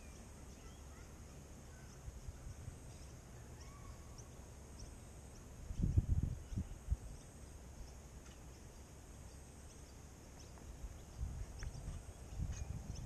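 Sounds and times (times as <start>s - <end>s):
bird chirps: 0.0s - 13.0s
high insect hum: 0.0s - 13.0s
wind rumble on microphone: 5.6s - 7.4s, 10.8s - 13.0s.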